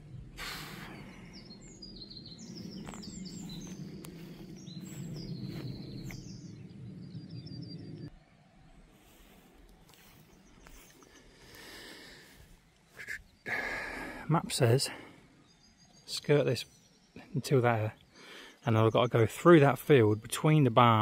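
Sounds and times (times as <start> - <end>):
steady low rumble: 0.0 - 11.4
small birds chirping: 0.0 - 21.0.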